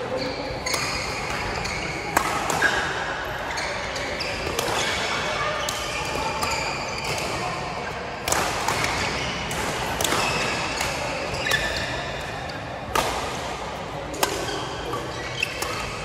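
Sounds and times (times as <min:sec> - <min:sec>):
rackets hitting shuttlecock: 0:00.7 - 0:03.0, 0:08.2 - 0:16.0.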